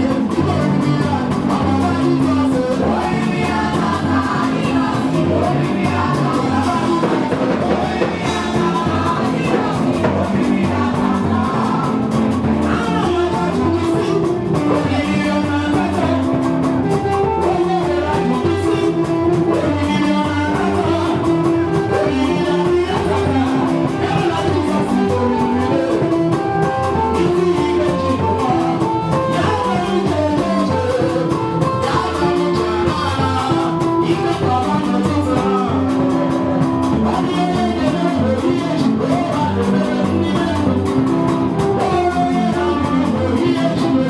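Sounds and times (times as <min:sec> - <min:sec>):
band playing a steady beat: 0:00.0 - 0:44.0
woman singing into a microphone: 0:00.0 - 0:44.0.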